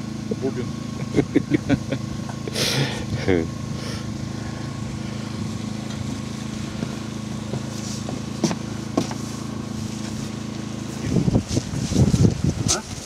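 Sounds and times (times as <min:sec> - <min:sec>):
small engine idling: 0:00.0 - 0:13.0.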